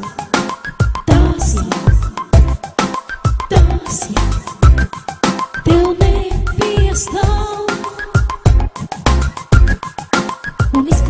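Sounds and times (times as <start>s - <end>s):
music with heavy beat: 0.0s - 11.0s
bass drum: 0.8s - 2.7s, 3.4s - 4.9s, 5.7s - 7.5s, 8.3s - 9.9s, 10.7s - 11.0s.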